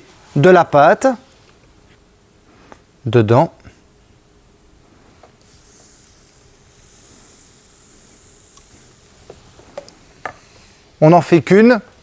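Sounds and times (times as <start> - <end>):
batter hissing on hot plate: 5.4 - 11.0.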